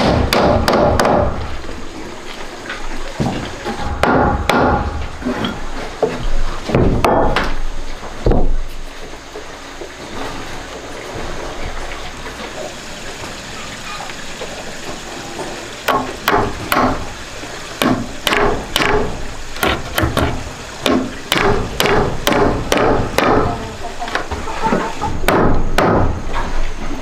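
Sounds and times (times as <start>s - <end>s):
hammer striking nails into wood: 0.0s - 1.4s, 4.0s - 4.9s, 17.8s - 23.5s, 25.3s - 26.2s.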